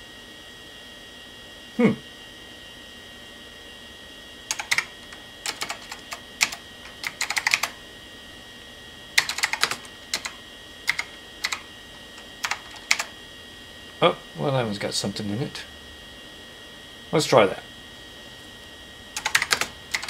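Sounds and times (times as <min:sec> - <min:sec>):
keyboard typing: 0:04.5 - 0:07.8, 0:09.2 - 0:13.2, 0:19.2 - 0:20.0.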